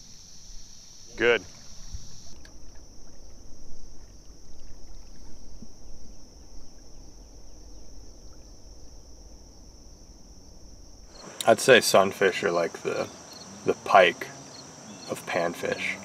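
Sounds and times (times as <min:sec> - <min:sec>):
rumbling air and water: 0:00.0 - 0:11.4
high-pitched insect drone: 0:00.0 - 0:16.0.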